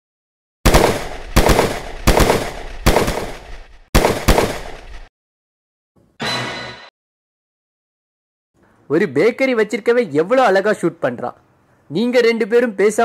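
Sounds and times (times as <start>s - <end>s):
revolver gunshots: 0.6s - 5.1s.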